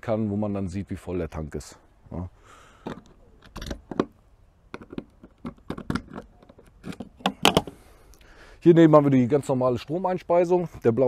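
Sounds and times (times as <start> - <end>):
small clicks and scrapes of plastic cap: 2.8 - 4.1, 4.7 - 8.2.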